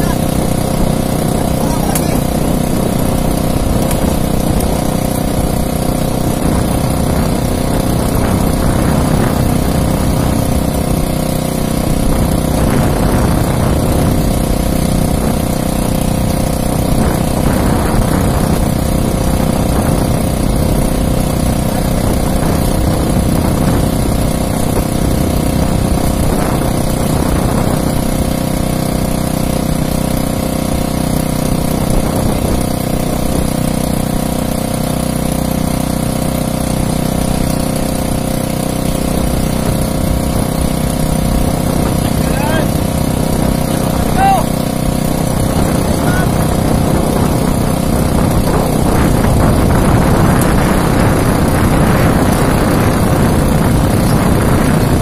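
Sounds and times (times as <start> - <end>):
small boat engine running: 0.0 - 55.0.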